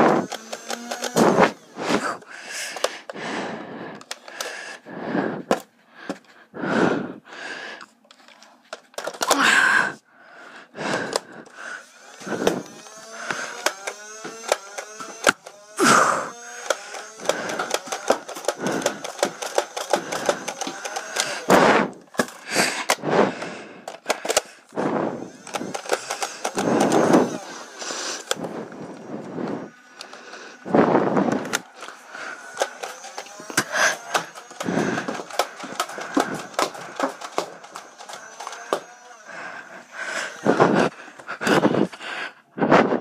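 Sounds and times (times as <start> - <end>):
flywheels spinning up whine: 0.0 - 2.8, 10.9 - 41.9
toy blaster whirring and firing: 0.0 - 6.2, 8.7 - 10.0, 10.7 - 42.0.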